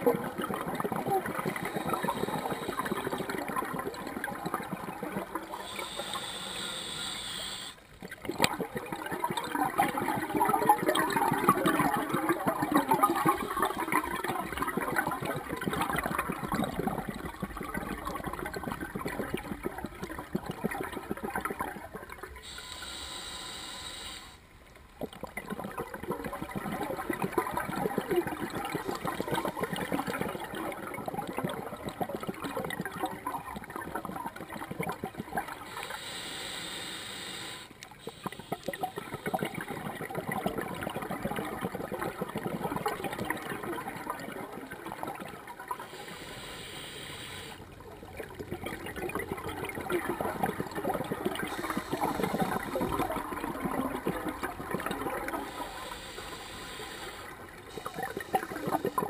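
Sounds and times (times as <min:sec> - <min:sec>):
bubbles gurgling underwater: 0:00.0 - 0:06.9, 0:08.0 - 0:22.5, 0:24.9 - 0:35.8, 0:38.0 - 0:46.0, 0:47.7 - 0:59.0
regulator inhalation hiss: 0:01.6 - 0:03.2, 0:05.6 - 0:07.8, 0:22.4 - 0:24.4, 0:35.7 - 0:39.5, 0:45.8 - 0:47.6, 0:51.4 - 0:53.1, 0:55.3 - 0:59.0.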